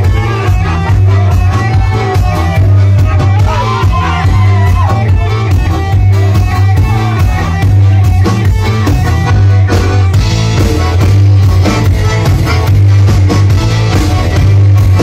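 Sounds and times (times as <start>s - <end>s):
drums: 0.0s - 15.0s
electric bass guitar: 0.0s - 15.0s
piano accordion: 5.2s - 15.0s.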